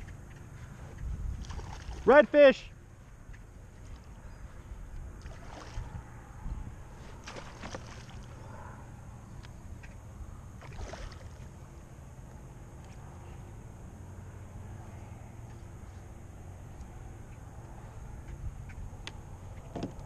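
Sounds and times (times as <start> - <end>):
water and wind against kayak hull: 0.9 - 2.2, 3.6 - 8.7
sharp knocks or splashes: 7.2 - 8.3.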